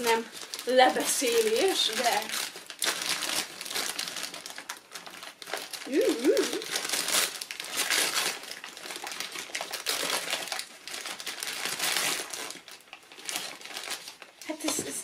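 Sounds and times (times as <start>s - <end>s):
wrapping paper crinkling: 0.0s - 15.0s.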